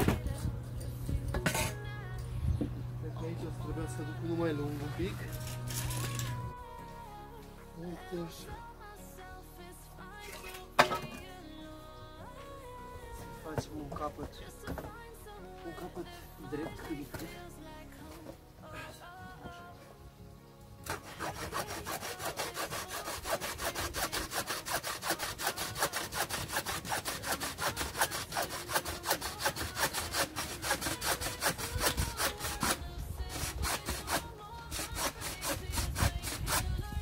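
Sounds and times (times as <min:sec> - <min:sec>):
bow saw cutting wood: 0:01.4 - 0:01.8, 0:04.3 - 0:06.5, 0:20.8 - 0:36.9.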